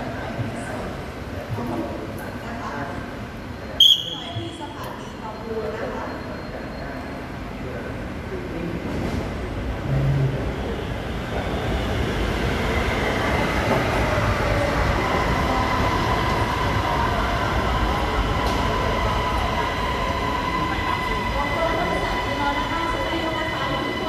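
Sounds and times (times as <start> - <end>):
train wheels rumbling on track: 8.8 - 24.0.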